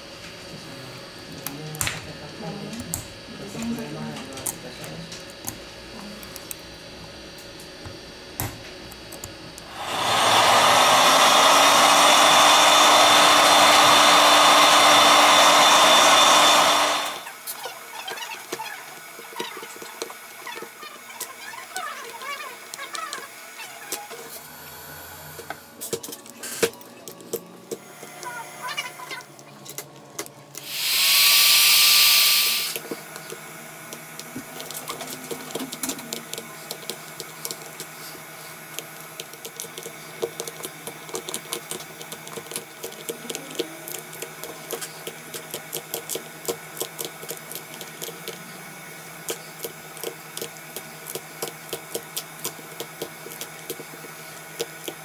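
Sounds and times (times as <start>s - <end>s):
loud hiss: 30.6s - 32.8s.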